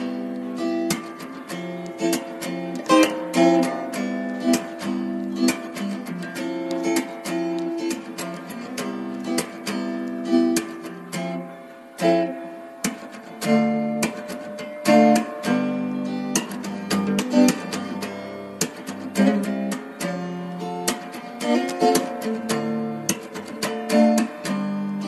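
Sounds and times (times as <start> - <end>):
acoustic guitar strumming: 0.0 - 25.0.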